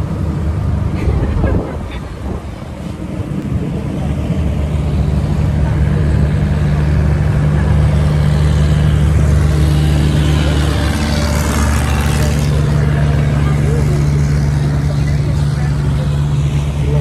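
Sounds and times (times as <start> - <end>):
rush of wind and water: 0.0 - 13.4
outboard engine drone: 0.0 - 17.0.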